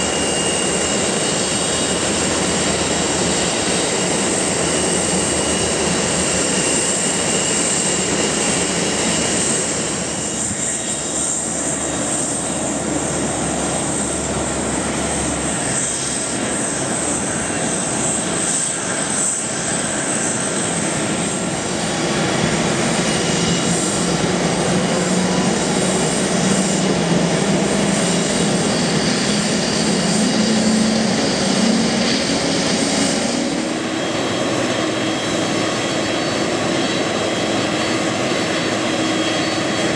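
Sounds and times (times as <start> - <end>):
jet engines idling: 0.0 - 39.9
low drone rising in pitch: 20.2 - 39.8.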